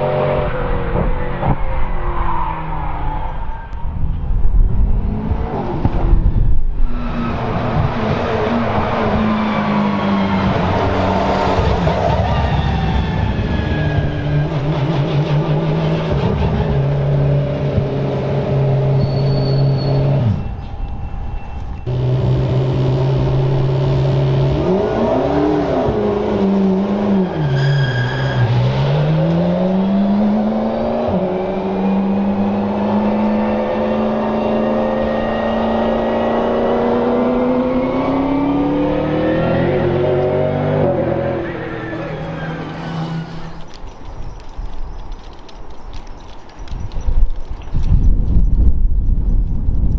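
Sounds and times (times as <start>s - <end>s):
car engine revving: 21.8s - 43.7s.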